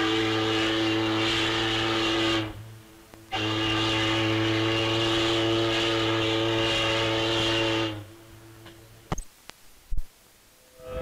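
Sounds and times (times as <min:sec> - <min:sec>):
deep steam whistle blast: 0:00.0 - 0:02.7, 0:03.3 - 0:08.1.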